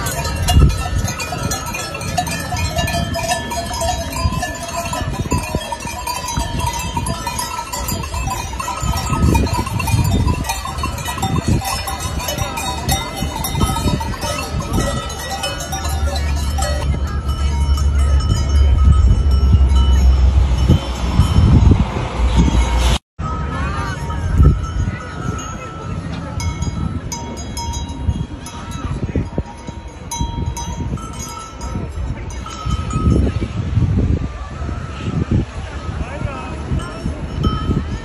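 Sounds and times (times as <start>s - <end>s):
cowbells clanking: 0.0s - 33.5s, 36.2s - 38.0s
low rumble: 13.4s - 25.2s.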